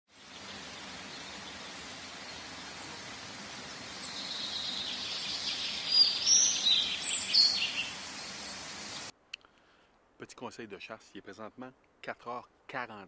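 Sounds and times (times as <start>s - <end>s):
birds chirping: 0.1s - 9.1s
steady rushing noise: 0.1s - 9.1s
quick high bird calls: 0.3s - 9.1s.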